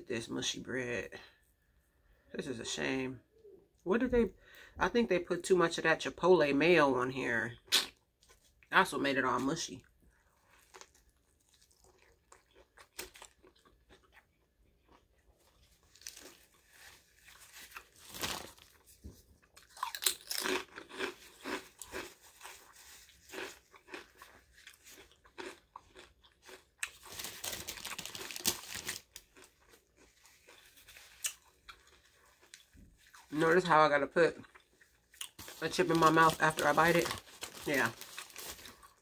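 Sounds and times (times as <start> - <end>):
crunching potato chips: 10.3 - 33.7, 34.3 - 39.0.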